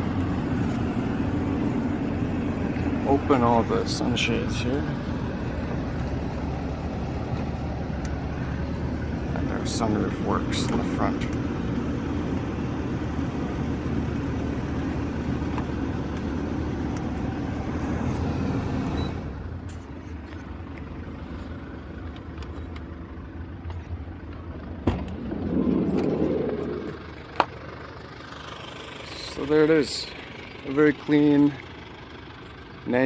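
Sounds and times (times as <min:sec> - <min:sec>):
diesel engine idling: 0:00.0 - 0:33.0
sunroof motor whirring: 0:24.3 - 0:27.4.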